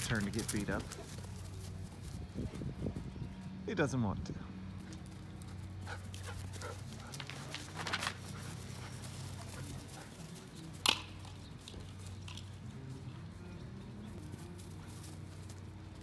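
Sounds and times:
paws thudding and scrabbling: 0:00.0 - 0:02.6, 0:04.8 - 0:10.4.

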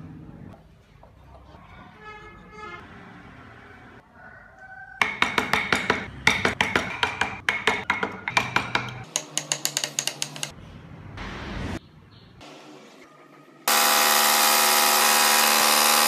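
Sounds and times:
chisel tapping into wood: 0:05.0 - 0:10.5.

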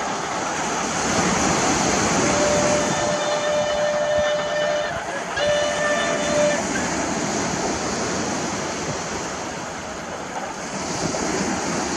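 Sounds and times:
train running noise: 0:00.0 - 0:11.9
waves breaking on shore: 0:00.0 - 0:11.9
steam locomotive whistle: 0:01.9 - 0:07.0.

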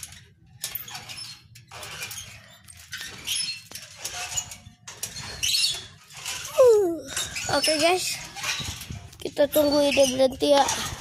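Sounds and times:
swing squeak: 0:00.0 - 0:11.0.

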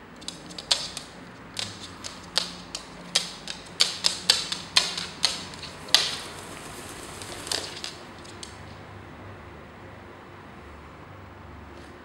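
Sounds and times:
parrot beak tapping on wood: 0:00.2 - 0:08.6.

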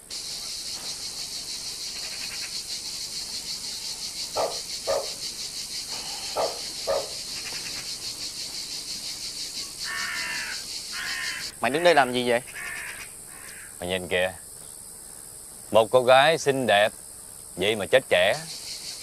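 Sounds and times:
high-pitched insect chirring: 0:00.0 - 0:19.0
short loud insect calls: 0:00.0 - 0:19.0.

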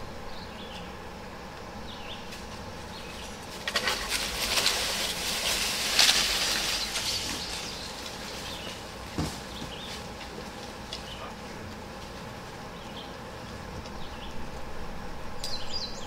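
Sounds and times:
rush of branches and leaves: 0:01.9 - 0:16.0
tree wood cracking and popping: 0:03.4 - 0:11.2.

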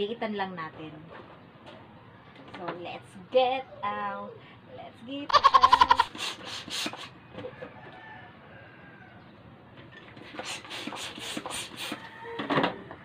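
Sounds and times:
hand pump hissing air into balloon: 0:06.0 - 0:07.1, 0:10.3 - 0:12.2.

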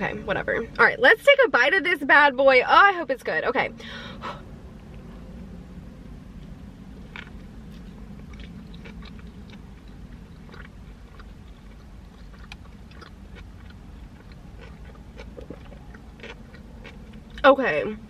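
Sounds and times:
low steady hum: 0:00.0 - 0:18.0
person chewing: 0:07.0 - 0:17.4.

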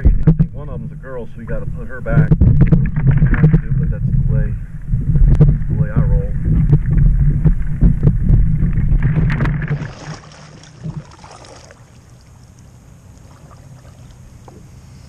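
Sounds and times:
wind rumble on microphone: 0:00.0 - 0:11.2
soft water noise: 0:00.0 - 0:15.0.

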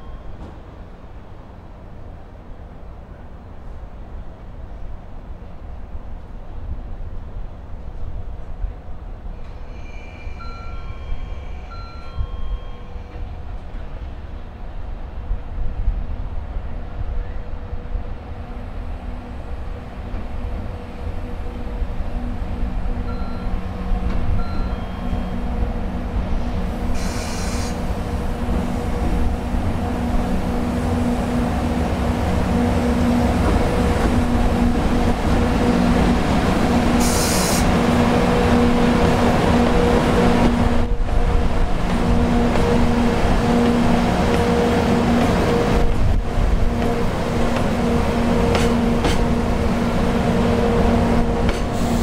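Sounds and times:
train wheels rumbling on rail: 0:03.1 - 0:52.0
locomotive hum: 0:07.8 - 0:52.0
short hissing bursts: 0:26.9 - 0:27.9, 0:37.0 - 0:37.7.

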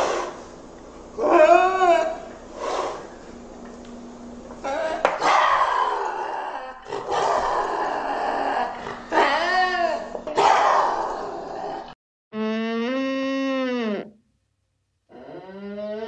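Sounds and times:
lynx yowling: 0:01.2 - 0:02.3, 0:04.6 - 0:12.0.

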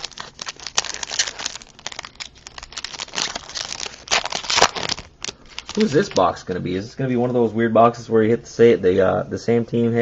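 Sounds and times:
plastic wrapper crinkling and tearing: 0:00.0 - 0:06.6.

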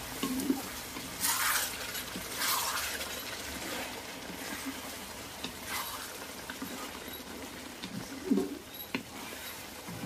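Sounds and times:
wooden spatula stirring curry: 0:00.0 - 0:10.0
spatula scraping metal wok: 0:01.2 - 0:04.7, 0:08.3 - 0:09.7.

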